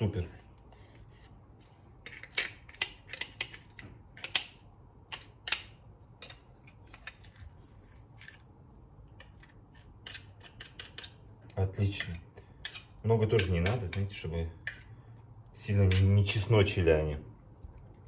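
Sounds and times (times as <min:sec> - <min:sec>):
knife scraping garlic press: 0:09.2 - 0:11.2.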